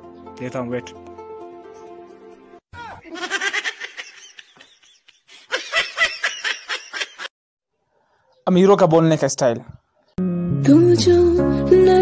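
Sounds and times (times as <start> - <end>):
person laughing: 3.0 - 7.3.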